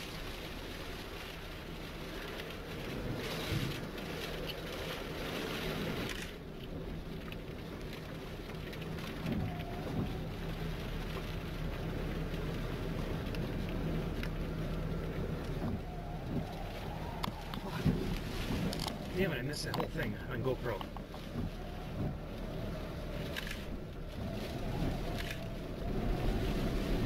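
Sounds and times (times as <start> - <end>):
wind and rain on microphone: 0.0 - 27.0
low hum: 6.1 - 27.0.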